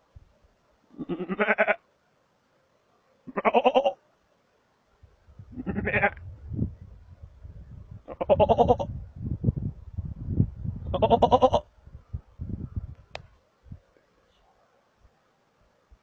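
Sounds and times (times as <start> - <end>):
quavering goat-like bleats: 0.9 - 1.8, 3.3 - 4.0, 5.5 - 6.2, 8.0 - 8.9, 10.9 - 11.7
low rumbling noise: 5.1 - 13.8.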